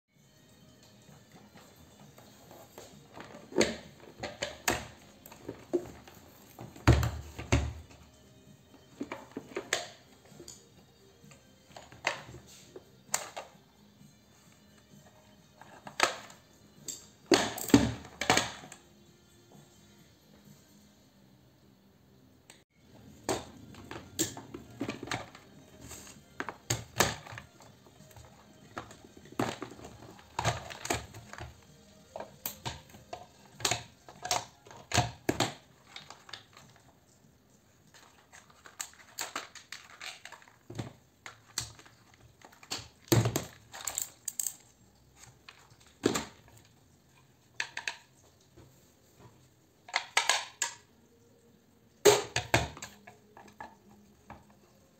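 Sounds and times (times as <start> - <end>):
plastic and metal clicks and snaps: 38.1 - 44.7.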